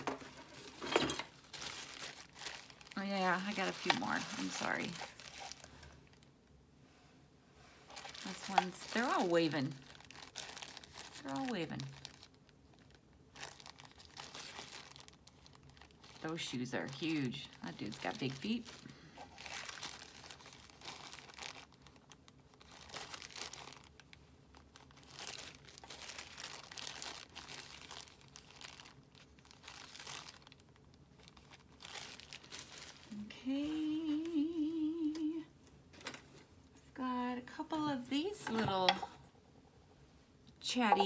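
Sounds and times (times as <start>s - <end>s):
plastic bag crinkling: 0.0s - 6.3s, 7.8s - 35.3s
woman humming: 33.1s - 35.5s.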